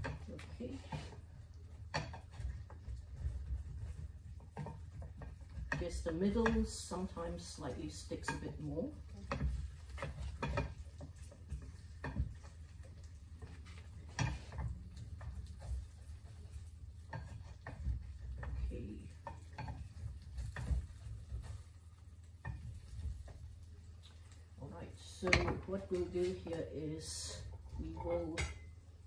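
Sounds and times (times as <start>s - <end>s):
low steady hum: 0.0s - 29.0s
spatula scraping metal pan: 13.6s - 21.5s.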